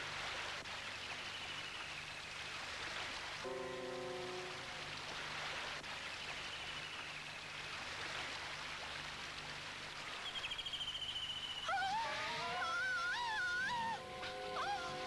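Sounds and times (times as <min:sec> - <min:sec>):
rising wailing tone: 0:11.7 - 0:15.0.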